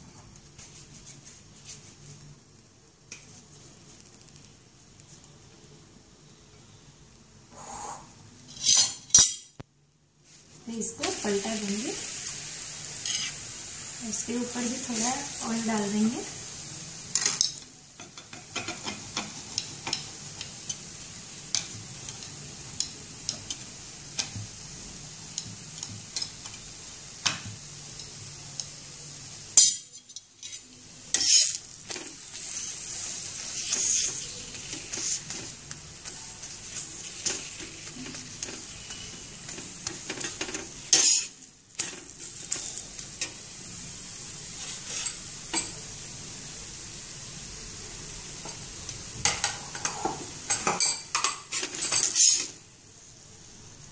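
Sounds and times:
flatbread sizzling in oil: 0:00.0 - 0:53.9
metal spatula scraping pan: 0:13.0 - 0:13.4, 0:29.9 - 0:31.6, 0:32.3 - 0:42.7, 0:44.6 - 0:45.7, 0:51.5 - 0:52.6.

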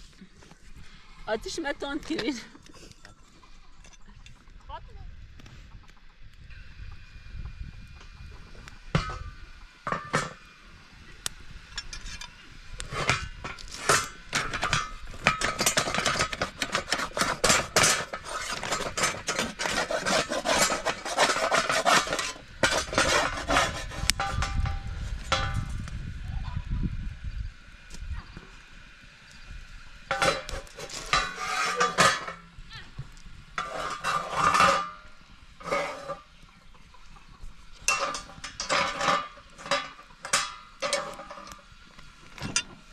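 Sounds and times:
metal dishes clinking and scraping: 0:09.9 - 0:10.4, 0:11.7 - 0:25.7, 0:30.1 - 0:32.5, 0:33.6 - 0:36.3, 0:37.2 - 0:41.6, 0:42.4 - 0:42.8.

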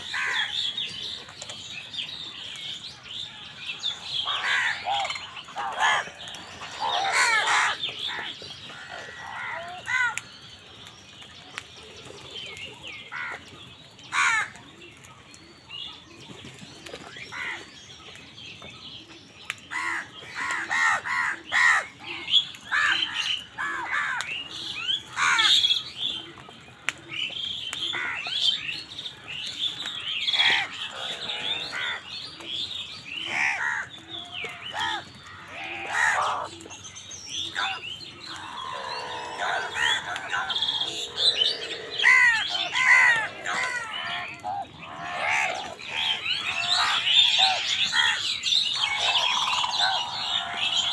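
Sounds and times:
crows cawing: 0:00.0 - 0:00.6, 0:04.2 - 0:10.2, 0:14.1 - 0:14.5, 0:19.7 - 0:24.3, 0:25.2 - 0:25.6, 0:30.3 - 0:32.1, 0:33.3 - 0:36.6, 0:37.5 - 0:50.9.

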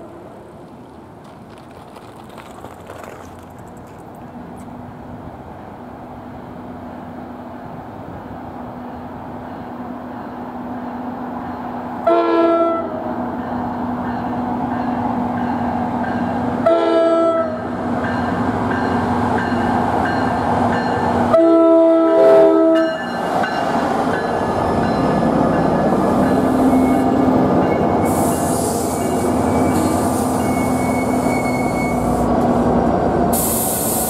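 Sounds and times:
train rumble: 0:00.0 - 0:12.1, 0:12.8 - 0:34.0
locomotive air horn blasts: 0:12.0 - 0:13.0, 0:16.6 - 0:17.6, 0:21.2 - 0:22.9, 0:28.0 - 0:32.4
locomotive engine drone: 0:12.8 - 0:34.0.

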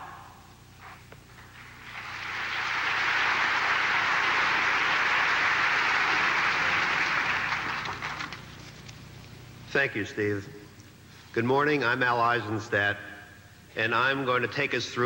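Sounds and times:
audience applause: 0:01.8 - 0:08.5.

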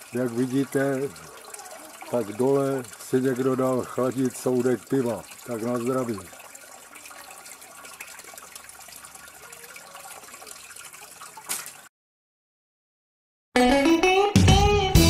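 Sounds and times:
spring water running: 0:00.0 - 0:11.9.

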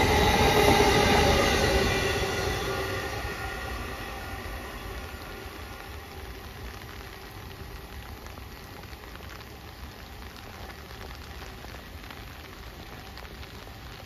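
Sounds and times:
heavy rain falling: 0:00.0 - 0:14.0
sharp ticks of raindrops: 0:03.2 - 0:14.0.

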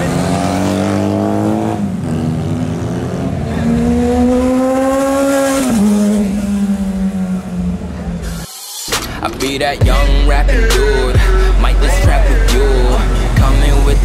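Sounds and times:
motorcycle engines accelerating: 0:00.0 - 0:08.5.

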